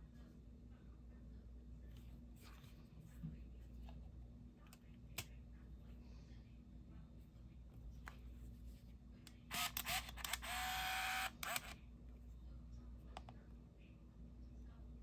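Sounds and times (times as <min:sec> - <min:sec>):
camera motor whirring: 0:09.5 - 0:11.8.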